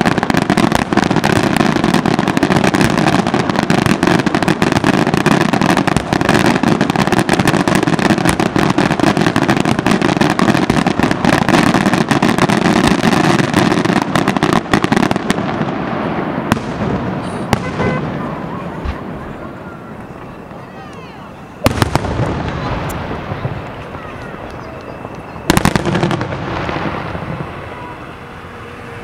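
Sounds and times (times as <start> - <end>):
fireworks bursting and crackling: 0.0 - 29.0.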